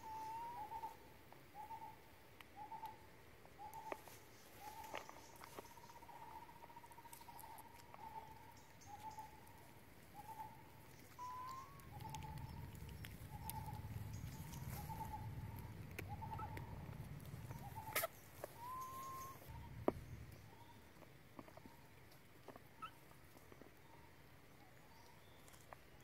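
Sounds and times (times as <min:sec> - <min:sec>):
bird hooting: 0:00.0 - 0:01.0, 0:10.1 - 0:19.9.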